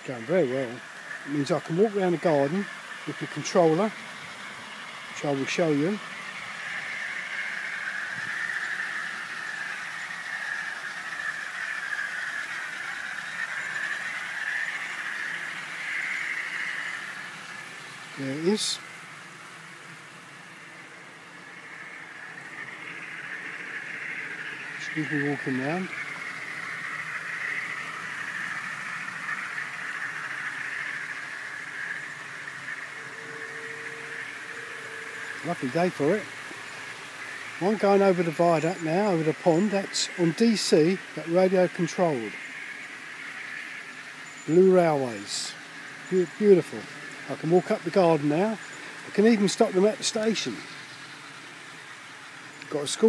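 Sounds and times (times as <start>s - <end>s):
faint hiss: 0.0s - 53.0s
model train motor whine: 0.0s - 53.0s
wheels rolling on track: 0.0s - 53.0s.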